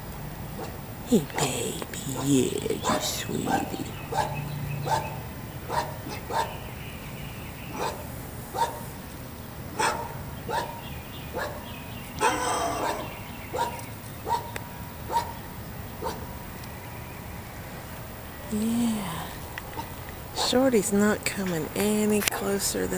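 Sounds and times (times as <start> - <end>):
dogs barking: 0.5 - 6.8, 7.6 - 9.0, 9.7 - 16.4, 19.6 - 20.7.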